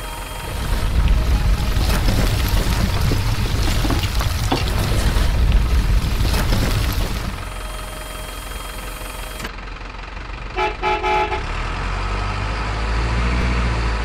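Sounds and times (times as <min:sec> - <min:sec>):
low engine drone: 0:00.0 - 0:14.0
toy truck horn toots: 0:10.5 - 0:11.6.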